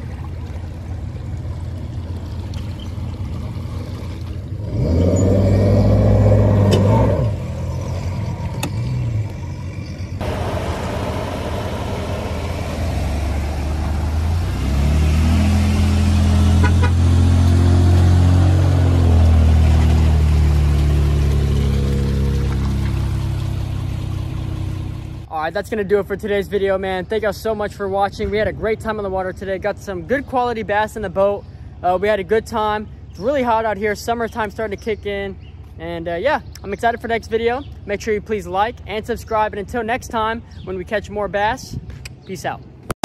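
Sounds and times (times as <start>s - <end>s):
engine running and revving: 3.2s - 25.3s.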